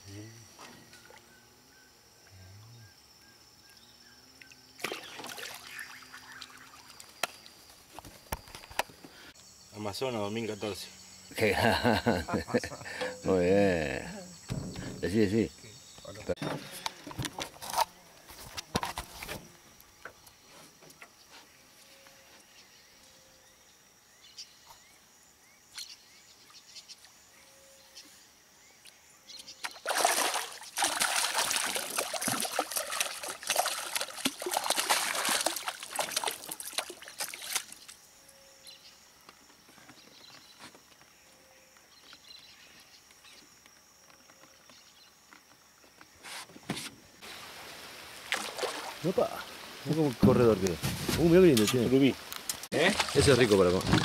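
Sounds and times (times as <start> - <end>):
fish thrashing in water: 29.7 - 37.9, 48.3 - 49.0.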